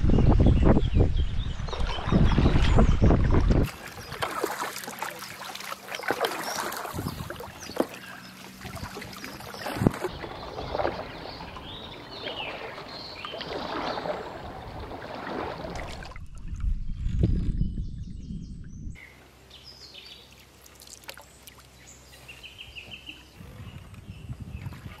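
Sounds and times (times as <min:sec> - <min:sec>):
paddles splashing in water: 0:01.7 - 0:16.7, 0:20.2 - 0:23.3.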